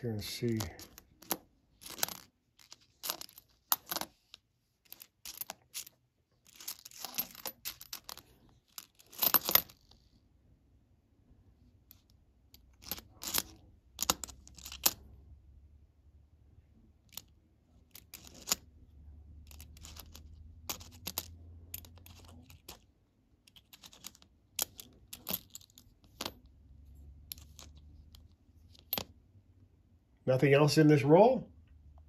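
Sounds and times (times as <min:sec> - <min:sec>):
coins clinking together: 0:06.5 - 0:08.2, 0:19.5 - 0:22.8.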